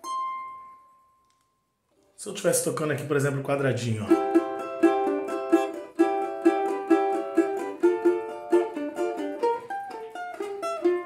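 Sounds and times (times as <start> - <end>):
cavaquinho strummed in samba rhythm: 4.1 - 11.0.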